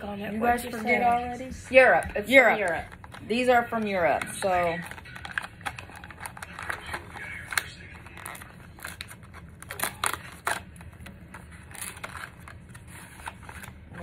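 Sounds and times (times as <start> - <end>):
plastic wrapper crinkling: 4.3 - 14.0.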